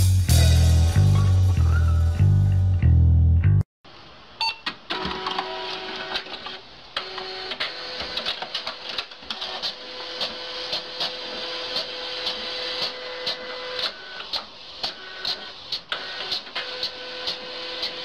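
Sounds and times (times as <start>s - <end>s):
fax machine whirring and clicking: 4.9s - 18.0s.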